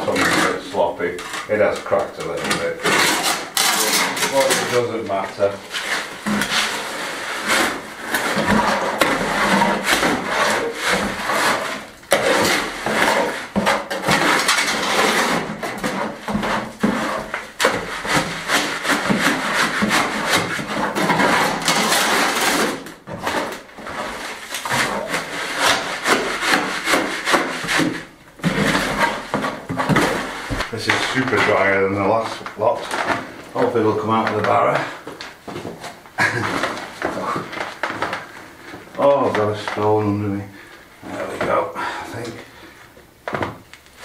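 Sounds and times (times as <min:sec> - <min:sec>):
shovel scraping in wheelbarrow: 0:05.7 - 0:31.7.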